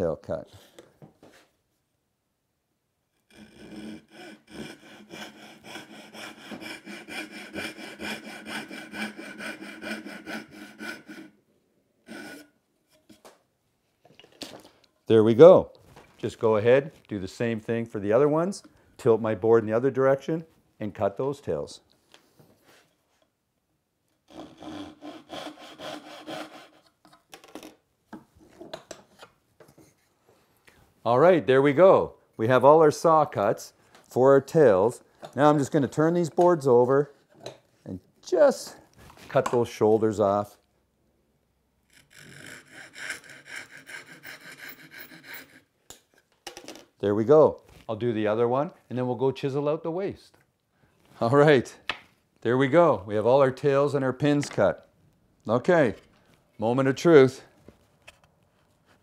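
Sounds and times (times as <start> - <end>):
hand saw cutting wood: 3.3 - 11.4, 12.0 - 12.6, 24.3 - 27.0, 41.9 - 45.7.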